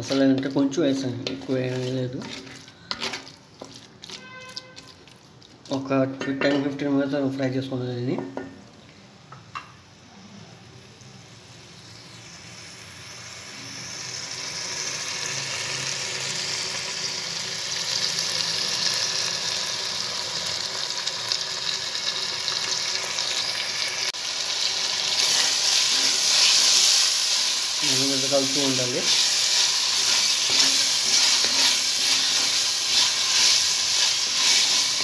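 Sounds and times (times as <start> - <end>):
wooden spoon stirring: 0.0 - 5.9, 25.2 - 35.0
chicken sizzling in hot oil: 0.0 - 6.0, 9.5 - 35.0.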